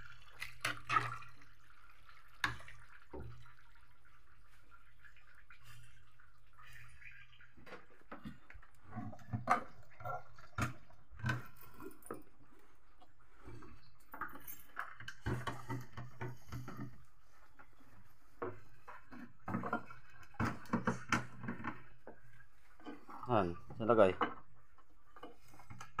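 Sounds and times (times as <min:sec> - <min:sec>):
pot of soup bubbling: 0:00.0 - 0:14.2.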